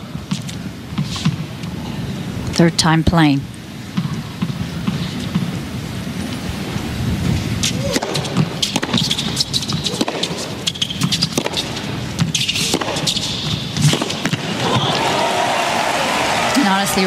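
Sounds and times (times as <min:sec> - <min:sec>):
tennis ball bouncing on court: 0:00.3 - 0:01.4, 0:03.9 - 0:05.6, 0:07.6 - 0:14.9
sneaker squeaks: 0:07.6 - 0:14.0
racket striking ball: 0:07.6 - 0:14.7.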